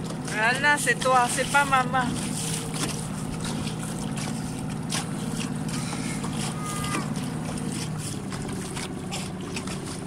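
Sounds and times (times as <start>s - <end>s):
boat engine hum: 0.0s - 10.0s
water slapping against hull: 0.0s - 10.0s.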